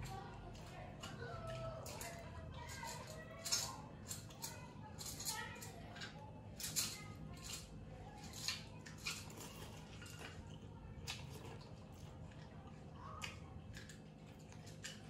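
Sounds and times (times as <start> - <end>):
chewing smacks and clicks: 8.5 - 15.0.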